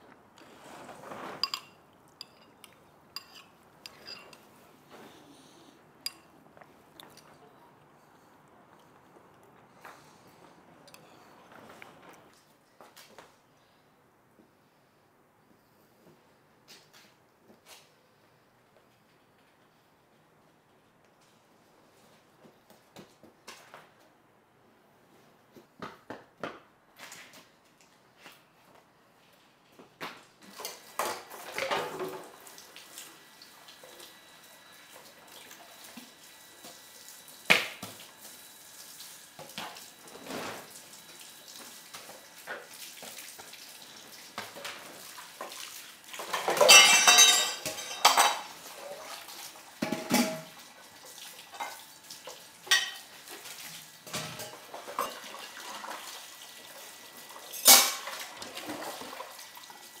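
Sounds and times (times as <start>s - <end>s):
dishes and cutlery clinking: 1.1s - 4.5s, 6.0s - 6.3s, 46.2s - 48.6s, 49.8s - 50.6s, 52.7s - 53.1s, 57.5s - 58.2s
dishes clattering: 1.2s - 4.4s, 46.2s - 48.6s, 49.8s - 50.6s, 52.7s - 53.1s, 57.5s - 58.2s.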